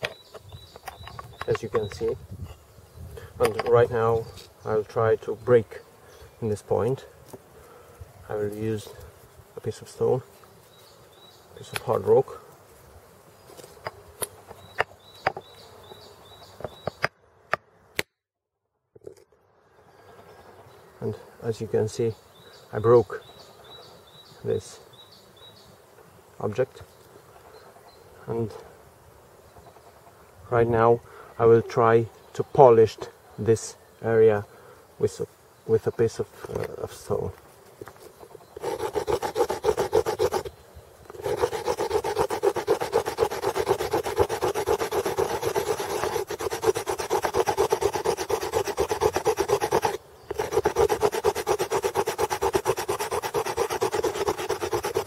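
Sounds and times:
stone rasping on antler: 38.2 - 40.5, 41.1 - 55.0.

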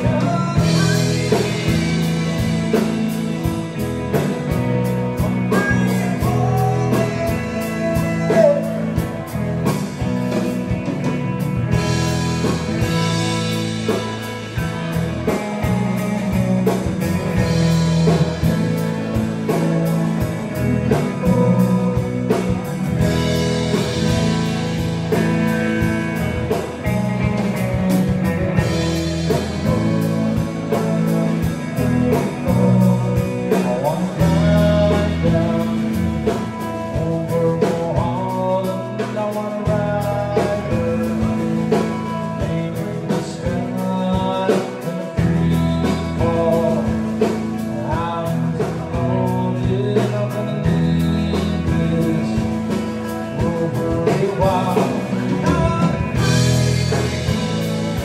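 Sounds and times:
live rock band playing: 0.0 - 58.0.

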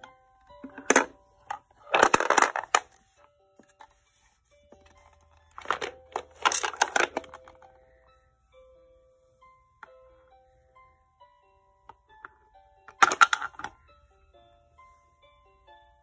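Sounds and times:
wooden pieces rattling in a box: 1.9 - 2.8, 5.5 - 7.5.

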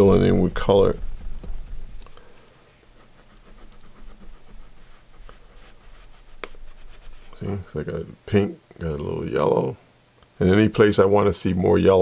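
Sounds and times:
crayon scribbling on paper: 0.0 - 7.6.

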